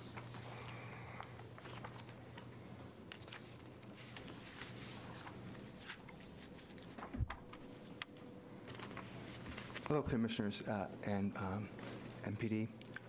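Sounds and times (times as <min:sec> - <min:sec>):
small clicks and rustles: 0:00.0 - 0:10.0
faint steady hum: 0:00.0 - 0:13.0.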